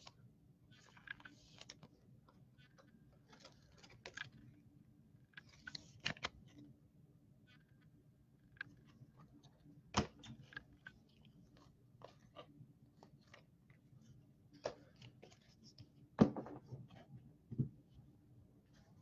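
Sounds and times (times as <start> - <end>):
plastic crinkling and clicking: 0.8 - 4.6.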